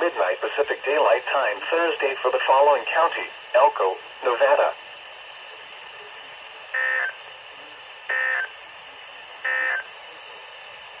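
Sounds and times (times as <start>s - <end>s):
radio hiss: 0.0s - 11.0s
digital data tones: 9.4s - 9.9s.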